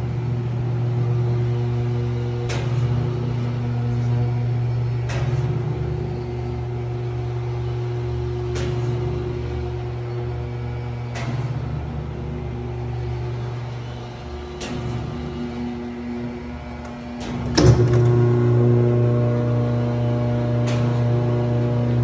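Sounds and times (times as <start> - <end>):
electric motor hum: 11.7 - 22.0.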